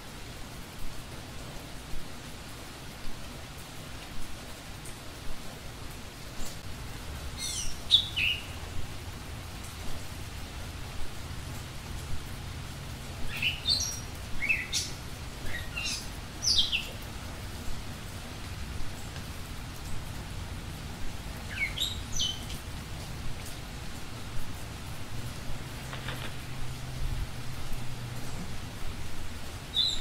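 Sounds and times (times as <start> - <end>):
low background hiss: 0.0 - 30.0
small bird chirping: 7.4 - 8.7, 13.3 - 17.0, 21.5 - 22.6, 29.7 - 30.0.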